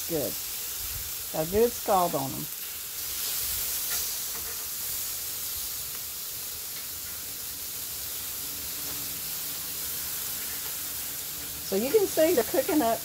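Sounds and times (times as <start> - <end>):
pork chops sizzling on a grill: 0.0 - 13.0.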